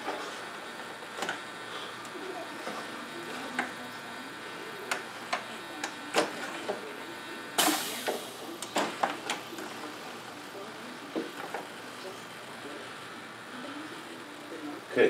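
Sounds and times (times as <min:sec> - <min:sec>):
loud hiss: 0:07.6 - 0:08.9.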